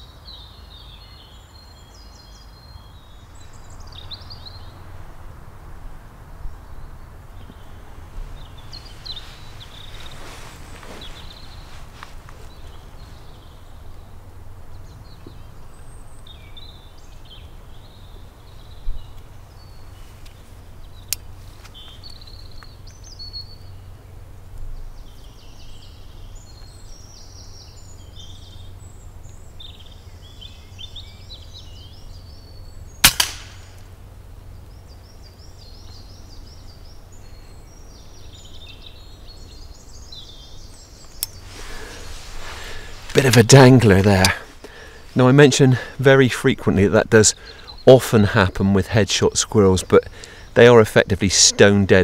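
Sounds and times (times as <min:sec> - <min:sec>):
birds chirping and trilling: 0:00.0 - 0:05.2, 0:06.0 - 0:52.0
pellet impact crack: 0:33.0 - 0:33.8
air rifle shot: 0:33.0 - 0:33.9.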